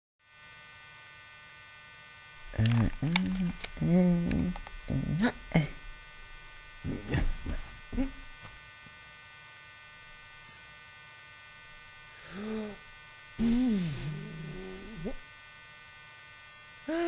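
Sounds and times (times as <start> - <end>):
electrical hum: 0.3 - 17.0
man making wordless vocal sounds: 2.5 - 5.9, 6.8 - 8.3, 12.2 - 12.8, 13.4 - 15.2.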